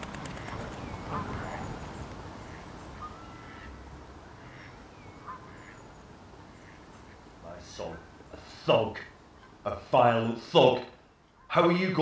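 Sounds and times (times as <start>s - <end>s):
waterfowl calls: 0.0s - 12.0s
birds chirping and whistling: 0.5s - 2.1s, 2.7s - 3.6s, 4.7s - 6.1s.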